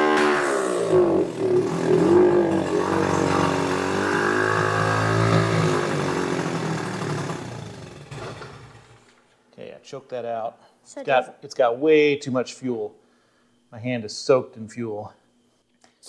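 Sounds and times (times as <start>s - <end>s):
small motorcycle engine running: 0.0s - 9.1s.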